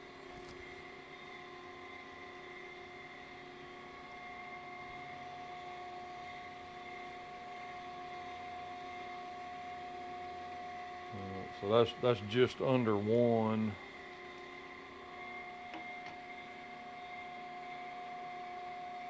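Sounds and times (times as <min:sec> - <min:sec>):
machine shop equipment humming: 0:00.0 - 0:19.0.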